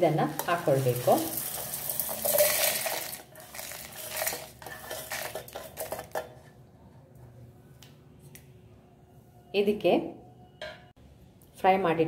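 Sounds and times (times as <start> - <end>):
seeds rattling into metal jar: 0.3 - 6.2.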